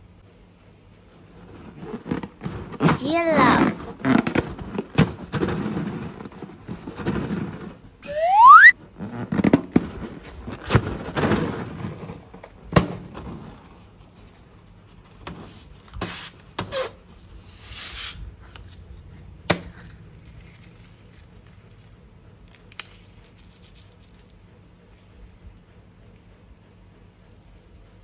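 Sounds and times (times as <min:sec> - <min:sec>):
plastic rustling: 0:01.1 - 0:07.9.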